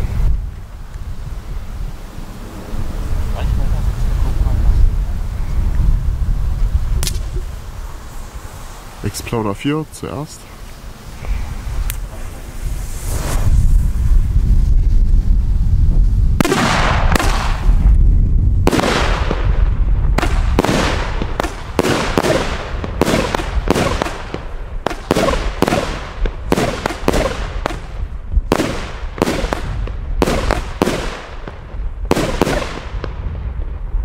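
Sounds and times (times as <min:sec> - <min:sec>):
firework bangs with echo: 0:16.4 - 0:17.9, 0:18.6 - 0:33.9.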